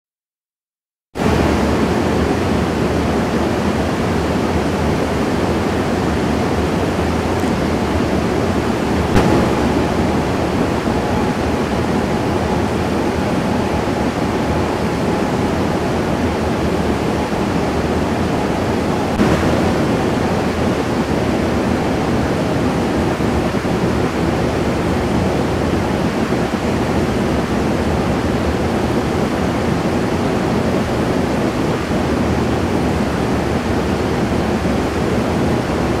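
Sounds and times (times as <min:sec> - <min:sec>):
steady rushing noise: 0:06.4 - 0:22.6.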